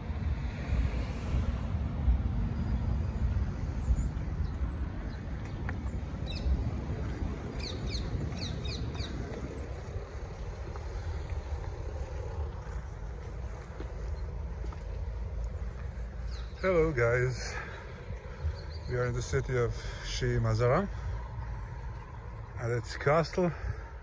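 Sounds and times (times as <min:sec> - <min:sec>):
bird chirping: 0:03.8 - 0:06.6, 0:07.5 - 0:09.2, 0:16.1 - 0:19.5
low uneven rumbling: 0:03.8 - 0:22.5.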